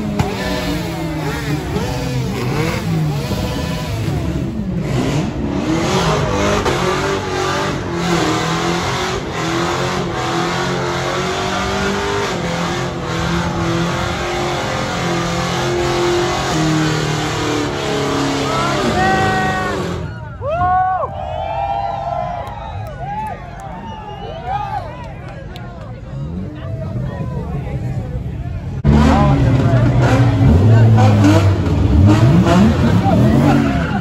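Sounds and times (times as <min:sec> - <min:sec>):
car engine revving hard: 0:00.0 - 0:20.1, 0:28.8 - 0:34.0.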